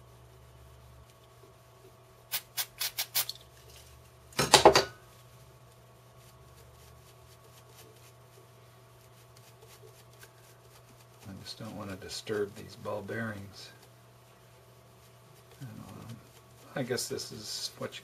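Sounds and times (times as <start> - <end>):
aerosol can spraying: 2.3 - 3.4.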